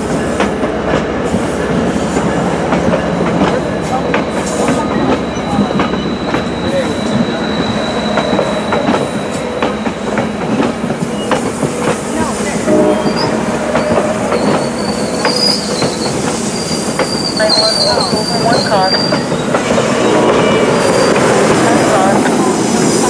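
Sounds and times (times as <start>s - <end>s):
train wheels clicking over rails: 0.0s - 23.0s
wheels squealing: 4.0s - 22.1s.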